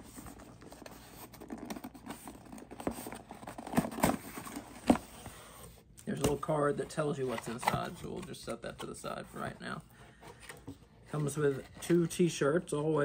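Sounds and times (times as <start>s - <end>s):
cardboard box taps and scrapes: 0.4s - 5.4s.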